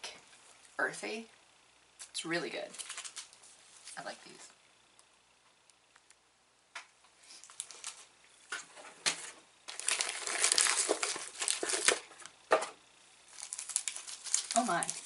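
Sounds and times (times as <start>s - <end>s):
plastic wrappers crinkling: 2.7s - 4.1s, 7.3s - 8.1s, 9.7s - 12.4s, 13.3s - 15.0s.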